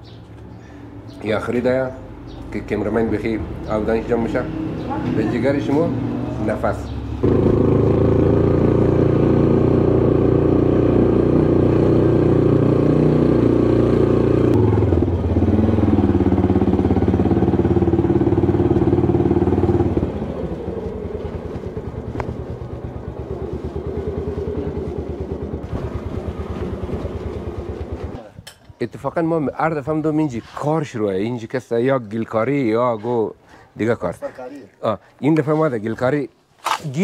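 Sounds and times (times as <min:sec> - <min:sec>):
engine running: 0:01.6 - 0:28.7.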